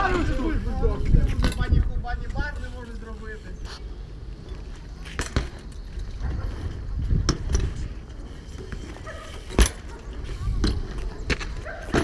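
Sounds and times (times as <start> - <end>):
wind on microphone: 0.0 - 2.7, 6.2 - 8.0
bike tyres rumbling on paving: 0.0 - 12.0
bikes knocking and clattering: 0.0 - 12.0.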